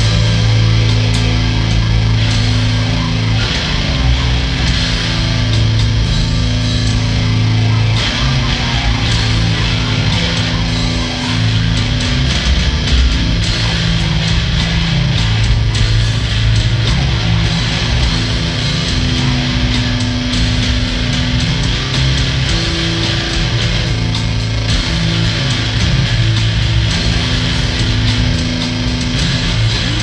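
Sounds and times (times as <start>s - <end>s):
electric bass guitar: 0.0s - 30.0s
electric guitar: 0.0s - 30.0s.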